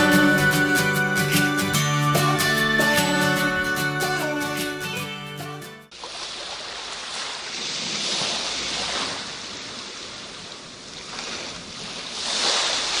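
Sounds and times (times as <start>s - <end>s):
surf washing up beach: 5.9s - 13.0s.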